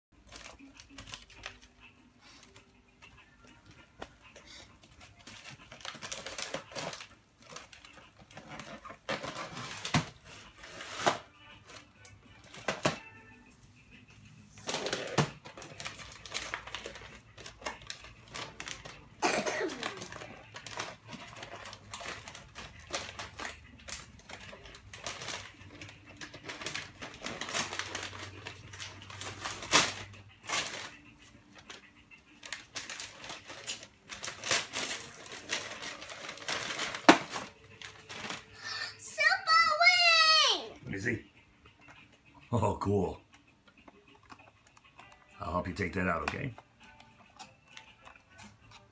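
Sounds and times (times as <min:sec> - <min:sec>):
gift wrapping paper crinkling: 0:00.2 - 0:11.9, 0:14.5 - 0:40.6.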